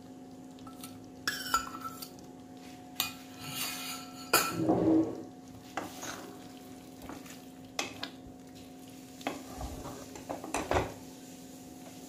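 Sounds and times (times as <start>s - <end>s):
faint sizzle: 0.0s - 12.0s
spatula scraping metal pan: 3.3s - 4.5s.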